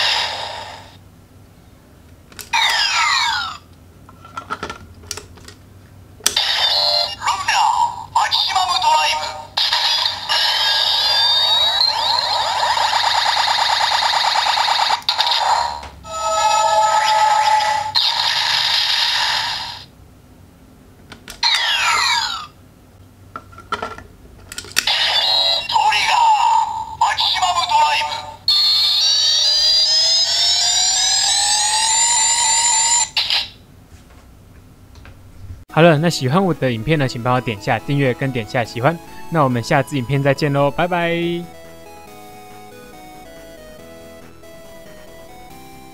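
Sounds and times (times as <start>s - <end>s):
fast electronic warble: 9.6s - 19.6s
electronic rising charging tone: 16.1s - 18.6s
held electronic chord: 36.0s - 45.9s.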